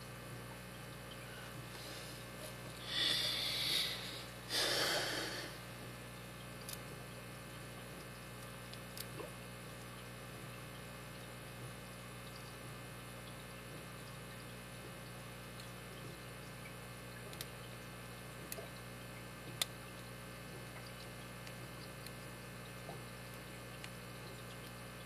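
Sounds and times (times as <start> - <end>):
steady low hum: 0.0 - 25.0
person exhaling: 2.8 - 5.6.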